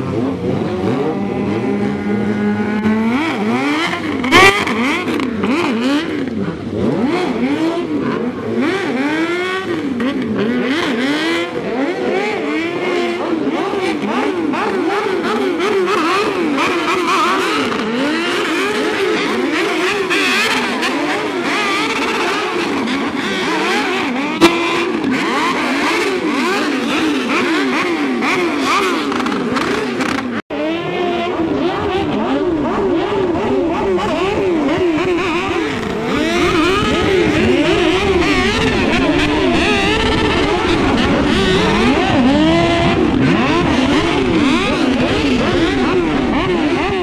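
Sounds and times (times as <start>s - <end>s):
motorcycle engines revving: 0.0s - 47.0s.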